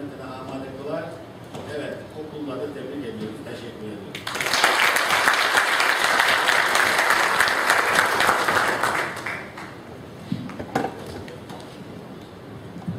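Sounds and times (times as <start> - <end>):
audience applauding: 4.2 - 9.8.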